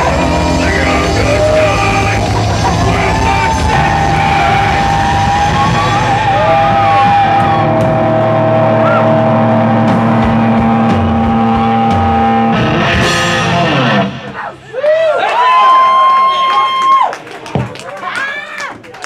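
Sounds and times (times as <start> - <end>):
drum hits: 0.0 - 14.6
distorted electric guitars and bass: 0.0 - 14.7.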